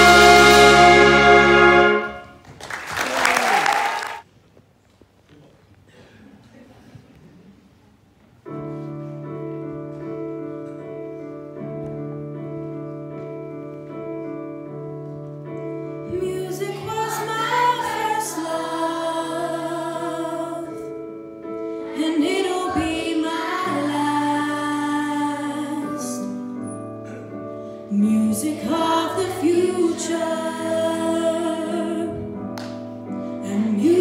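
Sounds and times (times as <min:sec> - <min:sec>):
choir singing: 0:00.0 - 0:02.3, 0:16.1 - 0:21.0, 0:21.8 - 0:26.3, 0:28.0 - 0:32.1
big band playing: 0:00.0 - 0:02.5.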